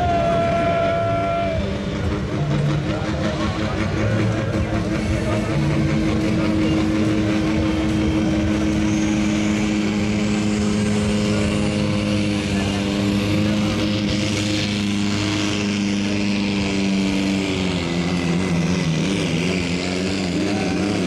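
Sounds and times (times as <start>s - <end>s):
diesel tractor engine running: 0.0s - 21.0s
high climbing whine: 0.0s - 21.0s.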